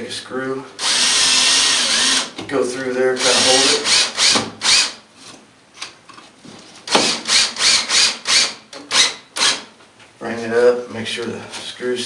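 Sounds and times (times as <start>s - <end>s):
cordless drill driving screw: 0.8s - 2.3s, 3.2s - 5.0s, 7.0s - 9.6s.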